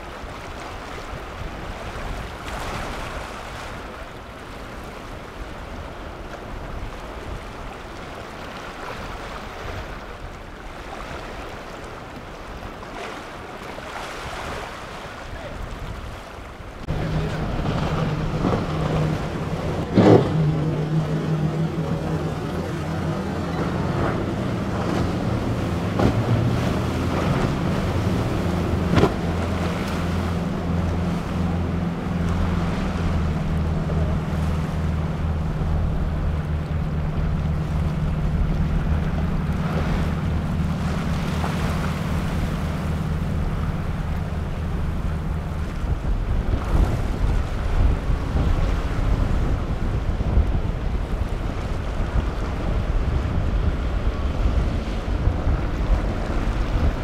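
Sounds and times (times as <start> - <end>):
outboard engines droning: 0.0 - 57.0
water rushing off boat hull: 0.0 - 57.0
wind on microphone: 13.9 - 57.0.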